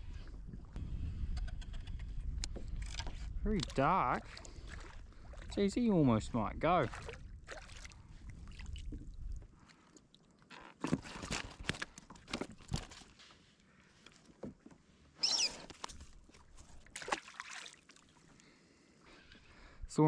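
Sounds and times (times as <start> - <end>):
fishing gear knocking and rattling: 10.7 - 13.1
high squeak falling in pitch: 15.2 - 15.6
fish splashing into water: 16.9 - 18.1.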